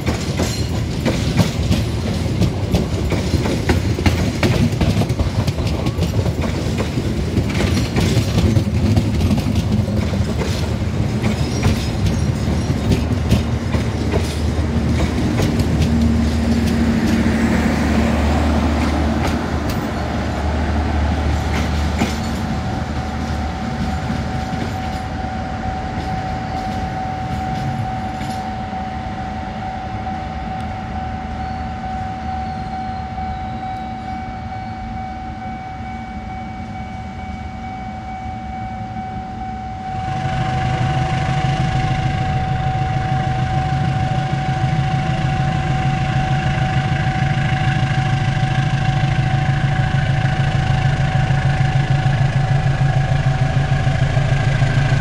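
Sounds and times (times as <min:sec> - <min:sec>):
train rumbling down the track: 0:00.0 - 0:55.0
heavy engine droning: 0:08.4 - 0:55.0
steady high whine: 0:12.9 - 0:55.0.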